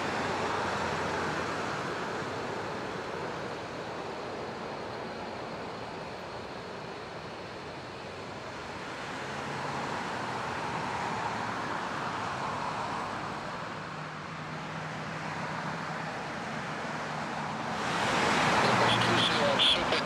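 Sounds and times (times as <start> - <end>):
jet airliner landing: 18.2 - 20.0.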